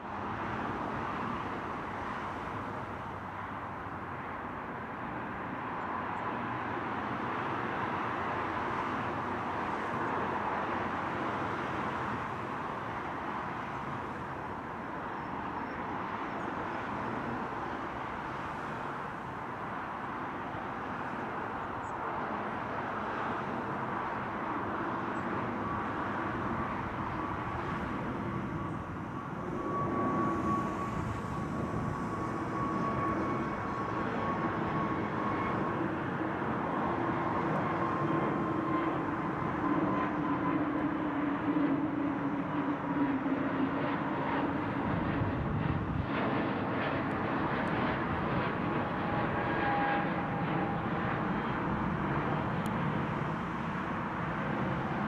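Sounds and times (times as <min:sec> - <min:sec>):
thin steady jet whine: 0:00.1 - 0:55.0
jet engines roaring: 0:00.2 - 0:55.0.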